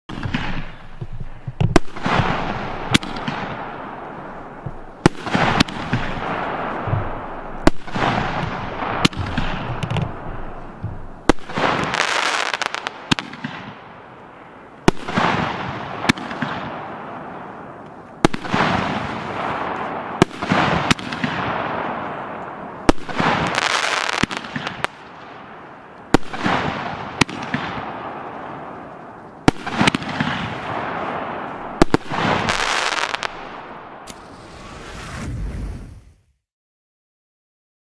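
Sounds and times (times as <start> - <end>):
firework bangs: 0.1 - 36.2
firework hiss: 34.0 - 36.3.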